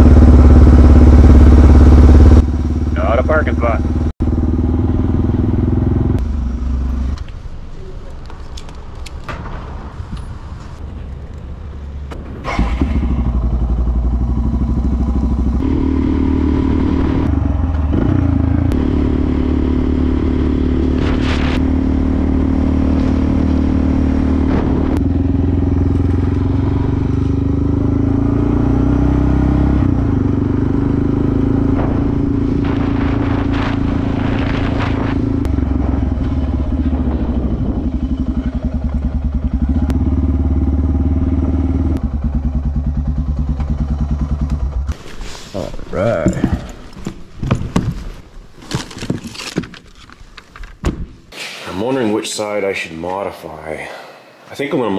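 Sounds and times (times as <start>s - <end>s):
motorcycle engine: 0.0s - 7.6s, 11.8s - 47.9s.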